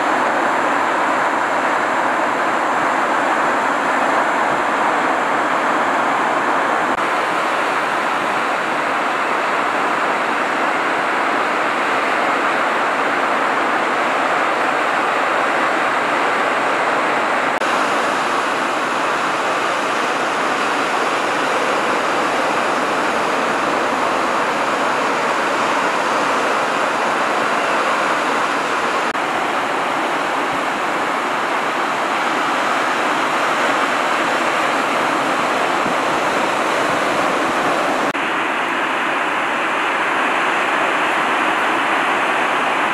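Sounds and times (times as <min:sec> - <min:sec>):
breaking surf rushing: 0:00.0 - 0:42.9.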